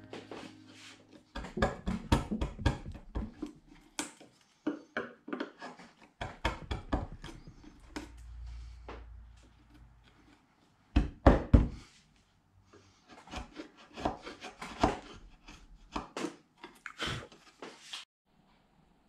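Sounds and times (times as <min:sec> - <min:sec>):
chisel scraping cuts on wood: 0:01.3 - 0:08.3, 0:09.4 - 0:11.1, 0:12.8 - 0:16.4.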